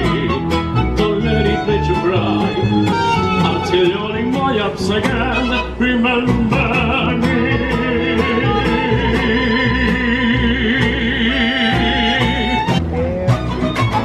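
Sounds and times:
low bass line: 0:00.0 - 0:14.0
mariachi band playing: 0:00.0 - 0:14.0
strummed guitars: 0:00.0 - 0:14.0
violin: 0:00.0 - 0:14.0
trumpet: 0:11.2 - 0:14.0.

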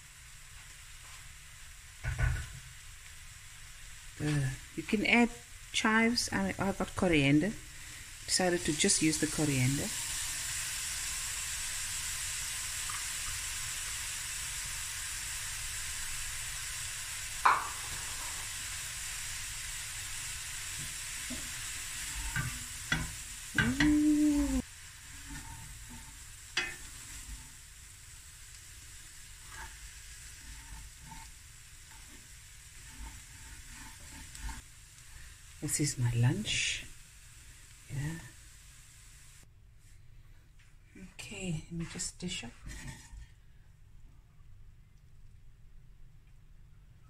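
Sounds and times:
rice sizzling in a pan: 0:00.0 - 0:39.5, 0:42.0 - 0:43.7
wooden spatula scraping a pan: 0:20.7 - 0:24.0, 0:24.6 - 0:27.8, 0:28.9 - 0:35.3, 0:41.8 - 0:43.4.

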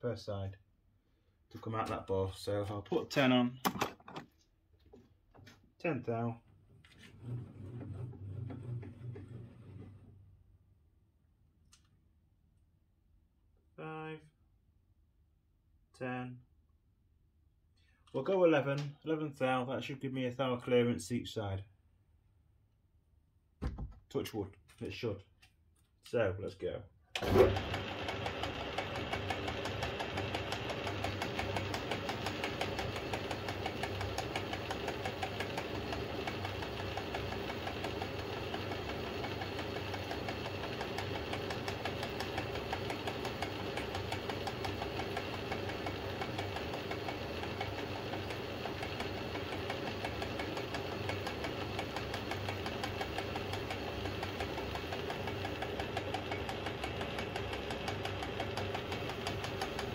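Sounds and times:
lathe motor humming: 0:27.2 - 0:59.9.

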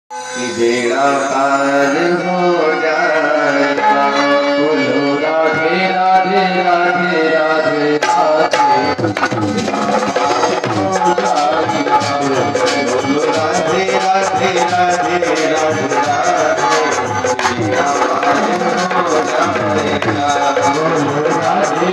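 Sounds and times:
harmonium chords: 0:00.1 - 0:21.9.

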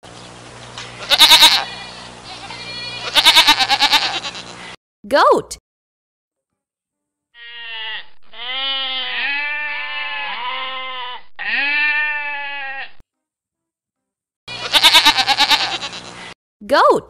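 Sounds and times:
goats bleating: 0:00.9 - 0:04.8, 0:07.4 - 0:13.0, 0:14.5 - 0:16.4.

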